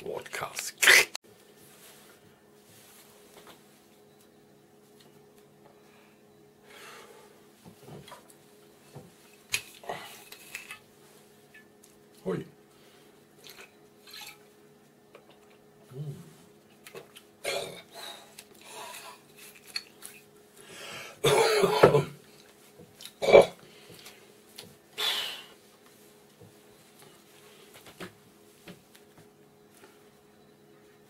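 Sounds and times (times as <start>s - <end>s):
man clearing throat: 21.2s - 22.2s, 23.2s - 23.6s
man coughing: 21.2s - 22.2s.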